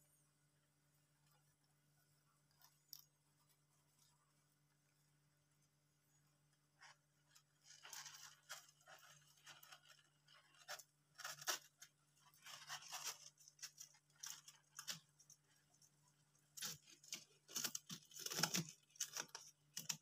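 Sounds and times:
faint steady hum: 0.0 - 20.0
hamsters scratching in bedding: 6.8 - 20.0.

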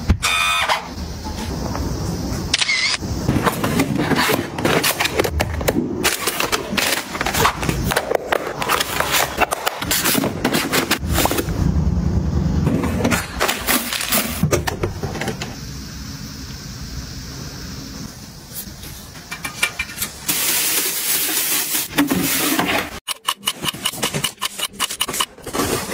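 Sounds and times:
plastic boxes clicking and knocking: 23.1 - 25.9.

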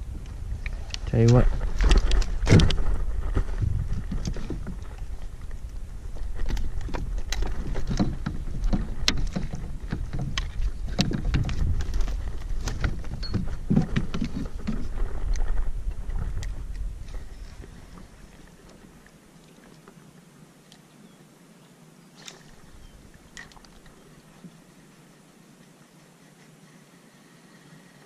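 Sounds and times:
wind rumble on microphone: 0.0 - 19.1
fishing gear clicks and rattles: 0.6 - 3.4, 4.0 - 16.8.

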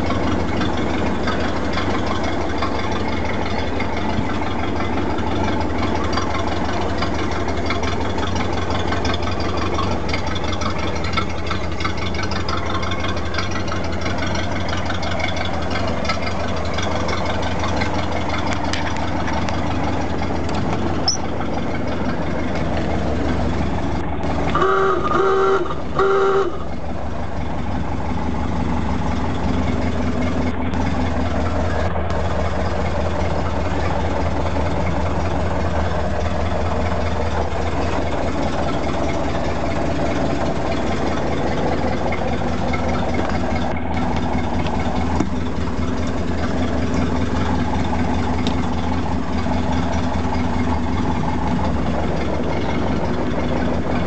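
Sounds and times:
car engine idling: 0.0 - 54.0
horn tone blasts: 24.5 - 26.8.

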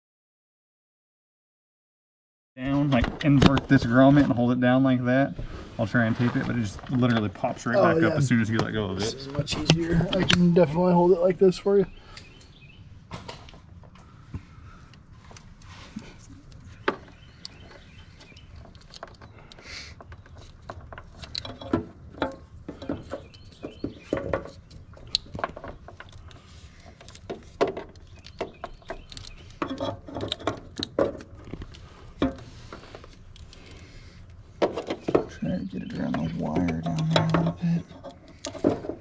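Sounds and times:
hands handling wires and connector: 13.1 - 35.4.

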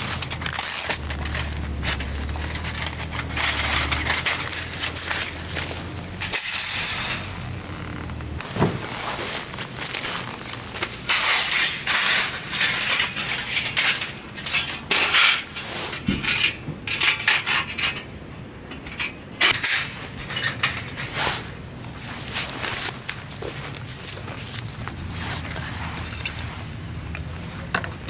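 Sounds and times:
metal grill parts clinking: 0.0 - 7.4, 11.0 - 18.1.

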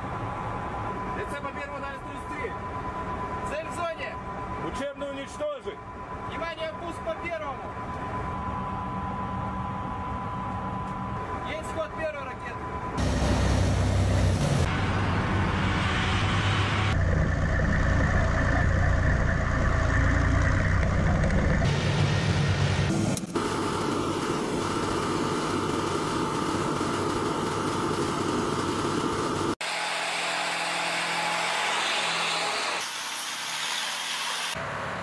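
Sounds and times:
heavy truck engines rumbling: 0.0 - 23.2
lighter vehicle noise: 0.0 - 25.6.

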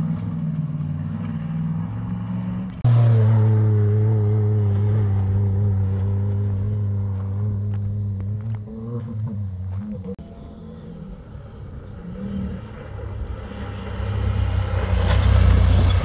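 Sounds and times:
off-road vehicle engines running: 0.0 - 16.0.

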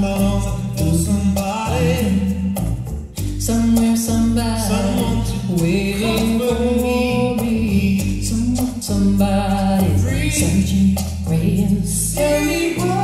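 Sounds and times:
steady bass: 0.0 - 13.0
woman singing pop song: 3.7 - 13.0.

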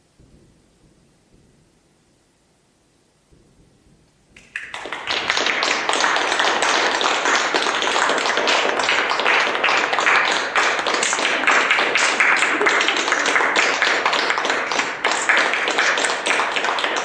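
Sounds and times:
audience applause: 4.4 - 17.0.

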